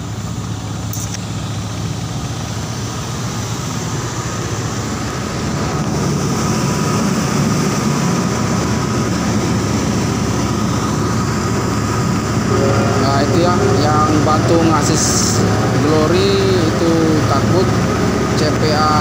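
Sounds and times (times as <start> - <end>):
ship engine drone: 0.0 - 19.0
faint steady whine: 8.5 - 19.0.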